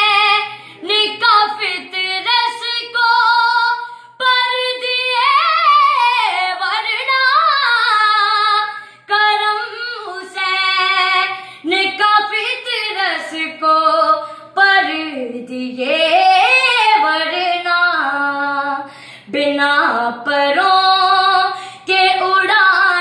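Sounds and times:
singer breathing: 0.5s - 0.8s, 8.7s - 9.1s, 11.3s - 11.7s, 18.8s - 19.3s, 21.5s - 21.9s.

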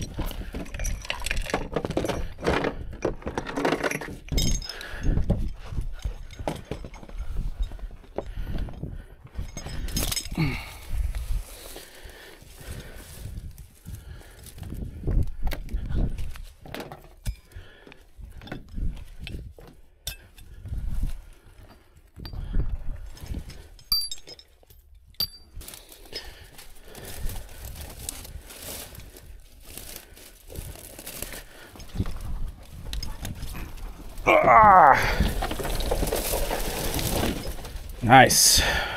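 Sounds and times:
dry brush rustling and crackling: 10.6s - 14.9s, 25.6s - 38.9s.

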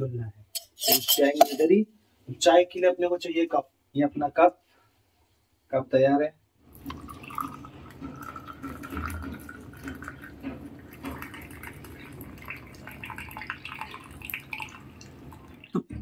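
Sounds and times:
liquid pouring into a glass: 6.7s - 15.8s.

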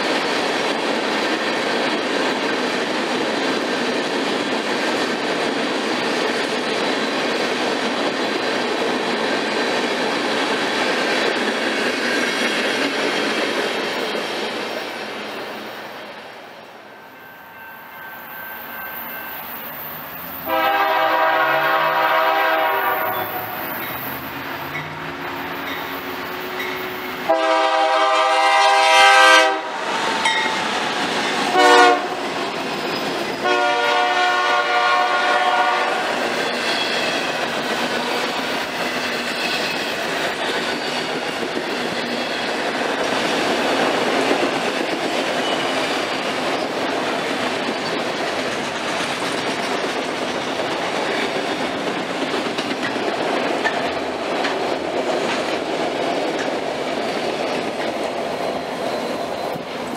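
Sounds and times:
train cars rumbling past: 0.0s - 59.9s
wheels clacking over rail joints: 19.9s - 27.8s, 35.4s - 59.9s
locomotive horn blasts: 20.5s - 23.6s, 27.2s - 30.3s, 31.5s - 32.2s, 33.4s - 36.1s.

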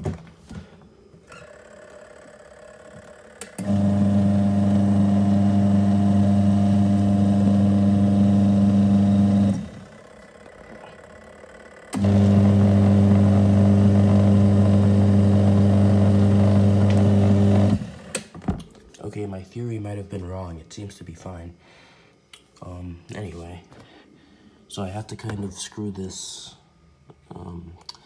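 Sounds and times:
washing machine motor humming: 1.2s - 18.3s.

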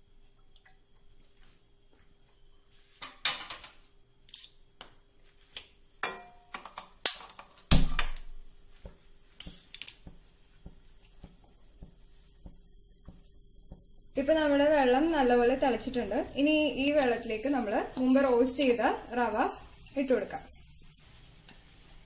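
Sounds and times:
kitchen clicks and knocks: 3.0s - 3.8s.

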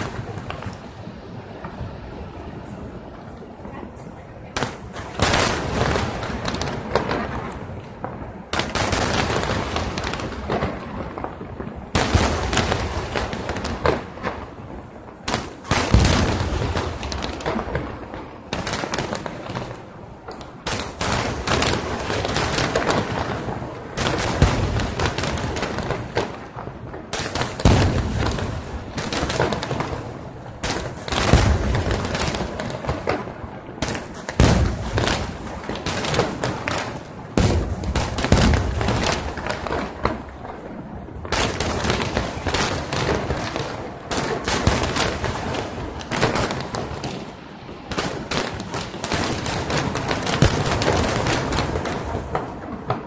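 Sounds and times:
firework shells bursting: 15.3s - 40.4s.

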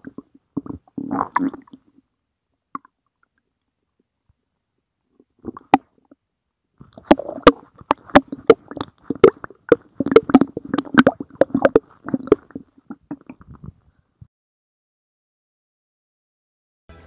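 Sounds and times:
stomach growling: 0.0s - 2.0s, 5.2s - 6.2s, 6.8s - 14.0s.

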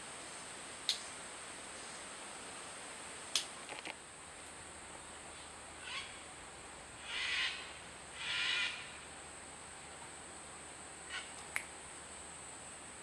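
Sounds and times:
bird hissing call: 5.8s - 6.3s, 7.0s - 9.0s, 11.1s - 11.3s.

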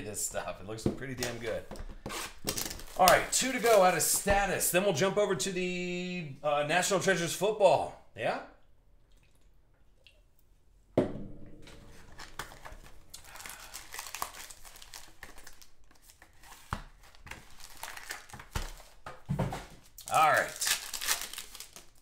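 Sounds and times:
card packs crinkling and rustling: 1.0s - 4.3s, 12.1s - 19.2s, 19.8s - 22.0s.

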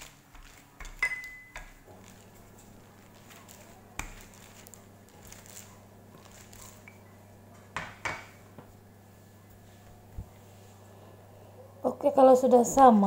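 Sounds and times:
faint steady hum: 0.0s - 13.0s
rolling pin knocking: 7.6s - 8.7s.

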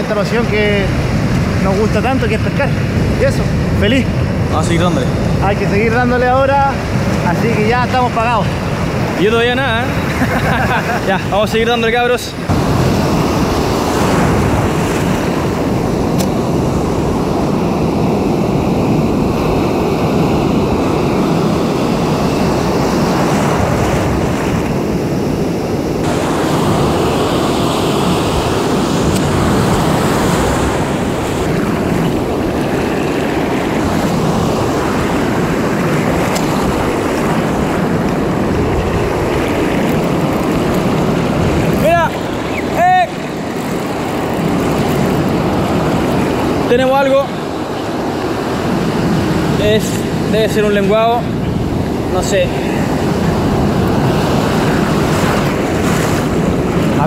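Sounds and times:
ocean surf breaking: 0.0s - 57.0s
wind buffeting microphone: 0.0s - 57.0s.

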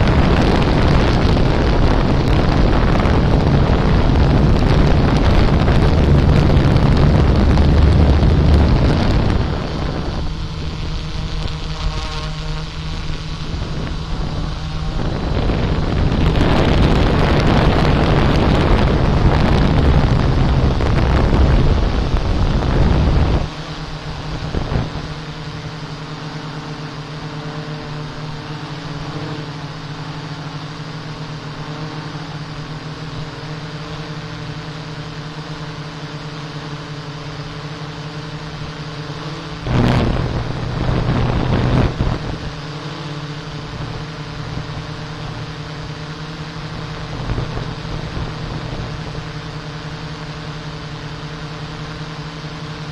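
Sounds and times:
rushing noise: 0.0s - 27.2s, 39.4s - 42.8s
drone propellers humming: 0.0s - 52.9s.

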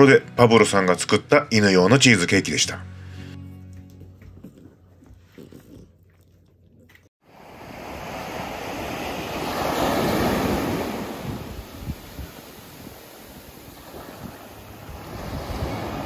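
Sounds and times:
sea surf: 7.3s - 16.0s
wind on microphone: 7.9s - 16.0s.

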